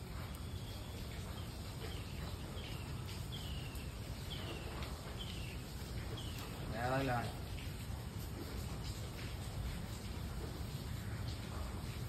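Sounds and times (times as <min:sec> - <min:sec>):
bird chirping: 0:00.2 - 0:06.7.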